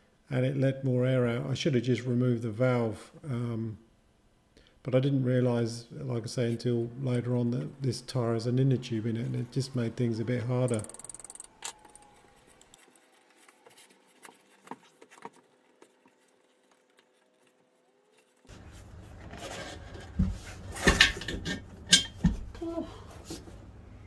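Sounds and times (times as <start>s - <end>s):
sharp metallic knocks and clicks: 10.7s - 11.8s.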